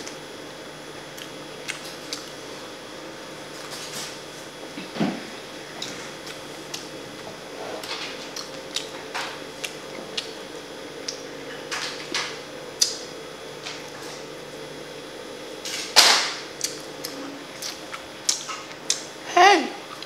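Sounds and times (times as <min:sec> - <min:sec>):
person chewing food: 0:01.1 - 0:02.4, 0:07.7 - 0:10.4, 0:16.6 - 0:19.1.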